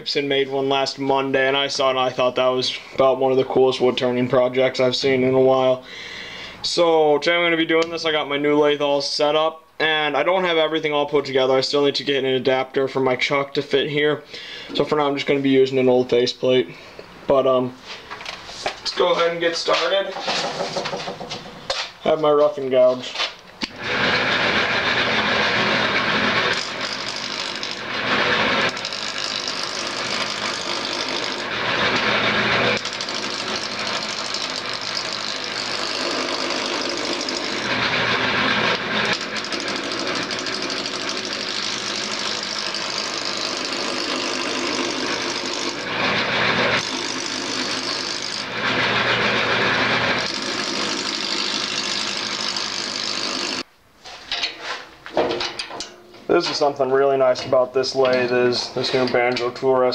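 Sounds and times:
lathe gouge cutting clatter: 23.8 - 53.6
lathe motor hum: 23.8 - 53.6.

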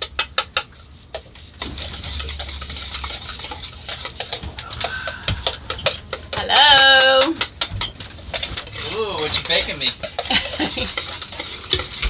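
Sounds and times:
wire whisk clinking in metal bowl: 1.7 - 12.0.

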